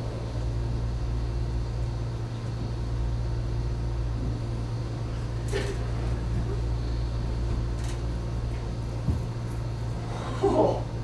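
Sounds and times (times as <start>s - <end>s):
low room hum: 0.0s - 11.0s.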